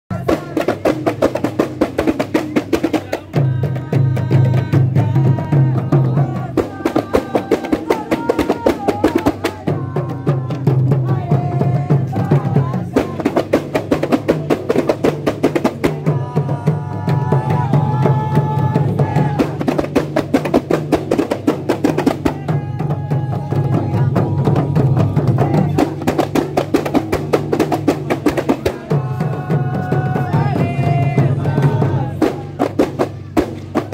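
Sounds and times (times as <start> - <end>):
hand frame drums beating: 0.1 - 33.9
men chanting: 0.1 - 33.9.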